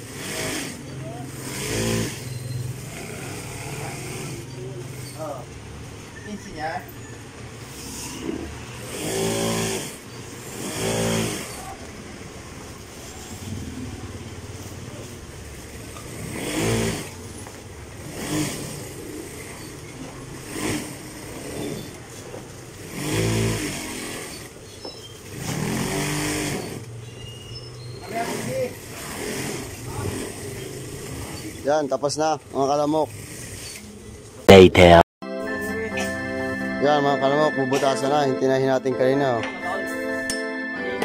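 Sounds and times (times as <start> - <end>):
passing vehicle engines: 0.0 - 34.5
sewing machine stitching: 28.3 - 31.6.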